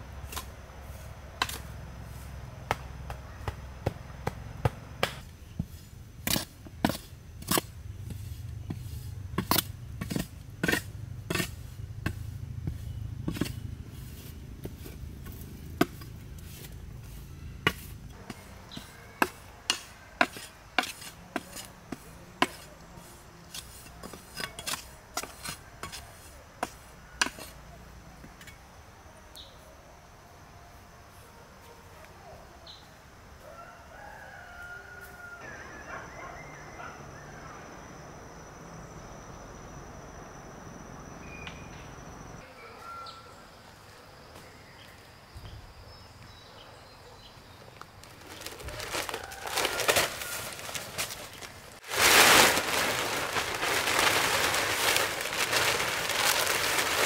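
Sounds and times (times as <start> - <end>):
hand tools knocking earth and stakes: 1.4 - 1.7, 2.7 - 16.8, 17.6 - 27.6.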